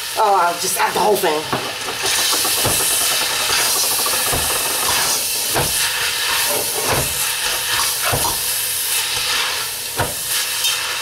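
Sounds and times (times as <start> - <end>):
greens sizzling in hot oil: 0.0 - 11.0
utensil knocking pot: 1.0 - 8.4.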